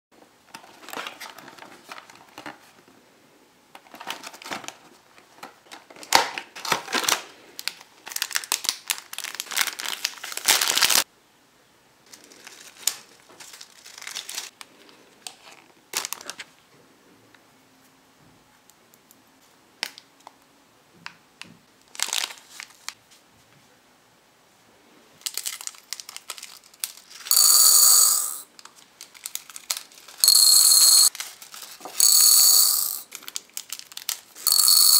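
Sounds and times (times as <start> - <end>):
plastic bags crinkling and tearing: 5.6 - 11.0, 12.1 - 14.6, 15.3 - 16.5, 21.9 - 23.0, 25.2 - 27.3, 28.6 - 30.2, 31.1 - 32.0, 33.1 - 34.4
candy beads rattling into a bowl: 27.1 - 28.5, 29.5 - 34.9.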